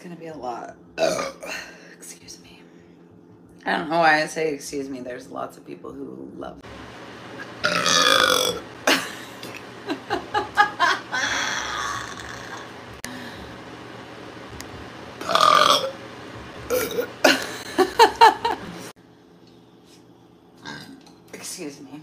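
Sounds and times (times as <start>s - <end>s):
woman belching: 1.0s - 1.6s, 7.6s - 9.6s, 11.1s - 12.8s, 15.2s - 16.0s.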